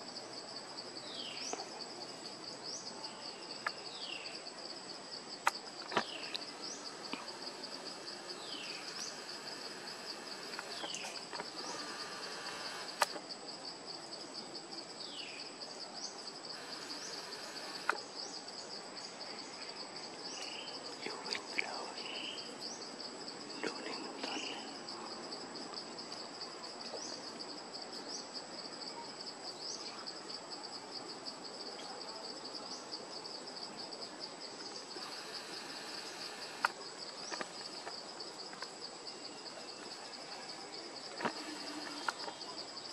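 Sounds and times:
high insect whine: 0:00.0 - 0:14.2, 0:16.0 - 0:19.1, 0:33.2 - 0:42.9
insects trilling: 0:00.0 - 0:14.2, 0:14.8 - 0:42.9
falling chirps: 0:05.8 - 0:13.2
sharp clicks: 0:08.8 - 0:13.2.

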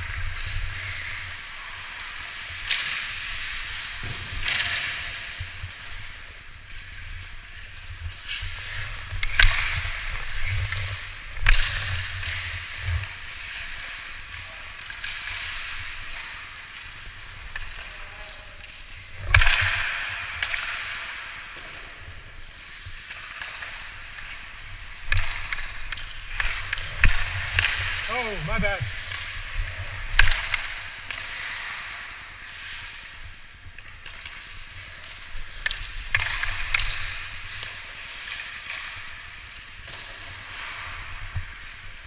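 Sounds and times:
skates scraping on ice: 0:00.0 - 0:42.0
stick clacking on puck: 0:08.0 - 0:33.2, 0:33.8 - 0:41.8.

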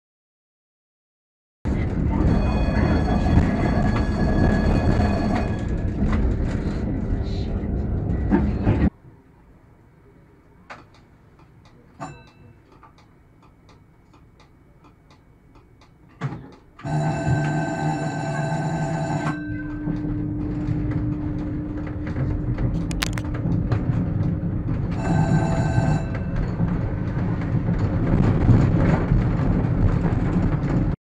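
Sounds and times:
tram warning bell ringing: 0:01.7 - 0:08.9, 0:12.0 - 0:12.7, 0:16.8 - 0:28.0
tram running hum with low whine: 0:01.7 - 0:31.0.

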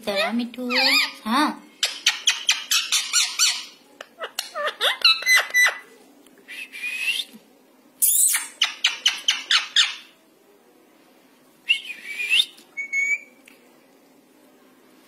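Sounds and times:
parrot chirps: 0:00.2 - 0:01.2, 0:01.8 - 0:05.8, 0:08.0 - 0:10.1, 0:12.8 - 0:13.3
parrot squawk-whistle: 0:12.2 - 0:13.3.

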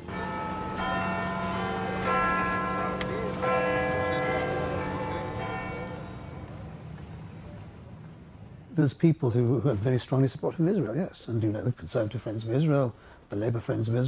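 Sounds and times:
clock tower bells chiming: 0:00.0 - 0:06.5.

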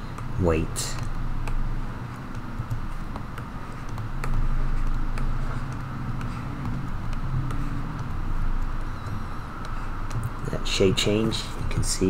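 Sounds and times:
low background hum: 0:00.0 - 0:12.0
computer mouse clicks: 0:01.0 - 0:10.4.

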